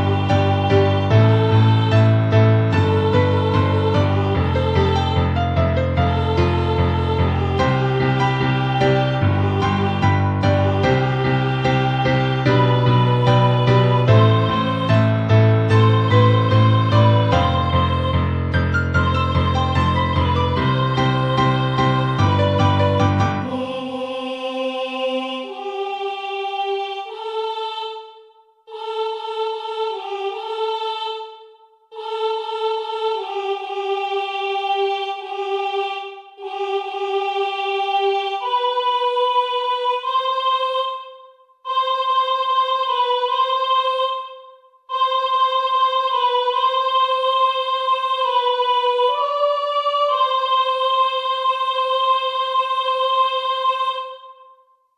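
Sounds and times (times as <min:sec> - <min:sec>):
high soprano voice singing: 0:19.0 - 0:28.0.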